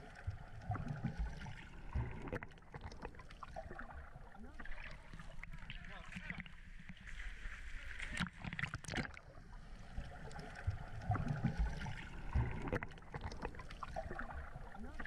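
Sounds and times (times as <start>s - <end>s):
water sloshing and lapping: 0.0s - 15.0s
muffled thumps and splashes: 8.0s - 9.3s, 10.0s - 15.0s.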